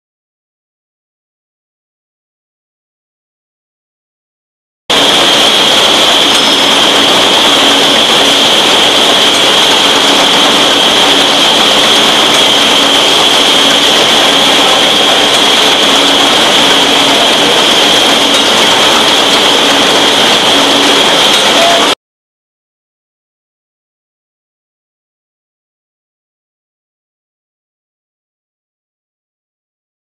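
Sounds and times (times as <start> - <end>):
machine hissing with high whine: 4.9 - 22.0.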